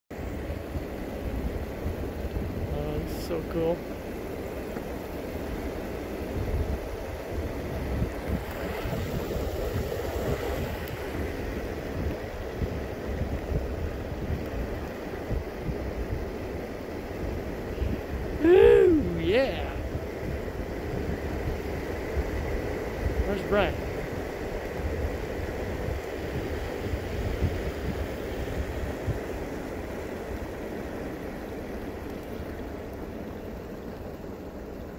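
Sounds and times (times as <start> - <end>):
wind buffeting microphone: 0.3 - 34.1.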